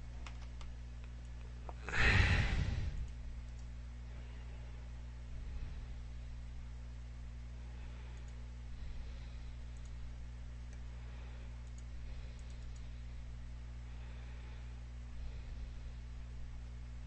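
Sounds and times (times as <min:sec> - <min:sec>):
low hum: 0:00.0 - 0:17.0
faint computer mouse clicks: 0:08.1 - 0:08.4, 0:09.7 - 0:10.0, 0:11.6 - 0:12.9.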